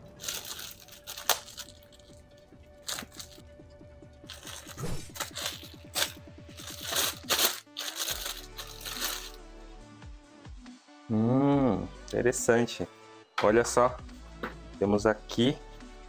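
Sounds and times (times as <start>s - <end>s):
plastic packaging crinkling: 0.0s - 3.4s, 4.3s - 9.4s
background music: 0.0s - 16.0s.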